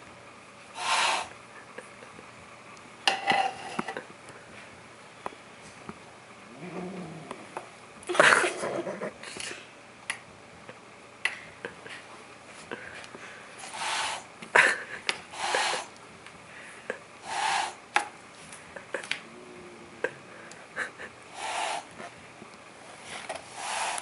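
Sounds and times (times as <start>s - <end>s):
cat hissing: 0.8s - 1.3s, 13.6s - 14.3s, 15.3s - 15.9s, 17.2s - 17.8s, 21.3s - 22.0s, 23.5s - 24.0s.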